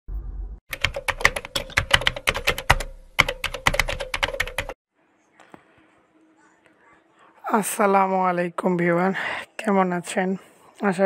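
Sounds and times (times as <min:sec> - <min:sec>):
keyboard typing clicks: 0:00.7 - 0:04.8.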